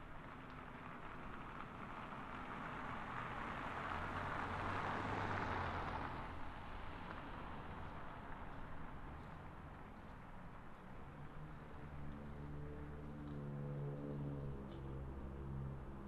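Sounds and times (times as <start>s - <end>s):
car driving past: 2.0s - 9.4s, 11.0s - 16.0s.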